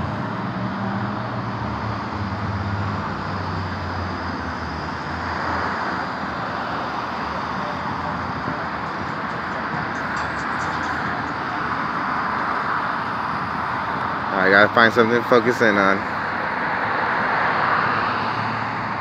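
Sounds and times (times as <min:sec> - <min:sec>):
low engine hum: 0:00.0 - 0:19.0
road traffic noise: 0:00.0 - 0:19.0.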